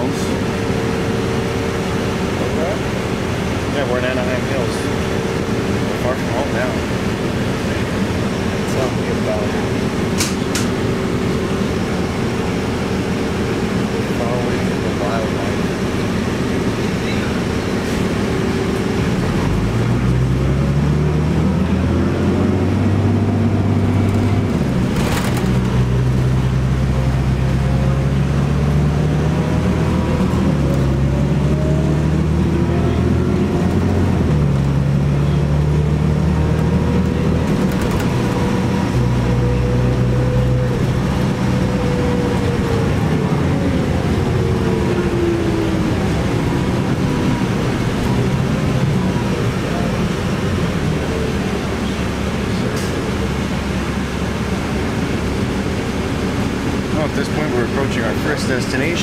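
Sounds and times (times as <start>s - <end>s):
bus engine shifting gears: 0.0s - 59.0s.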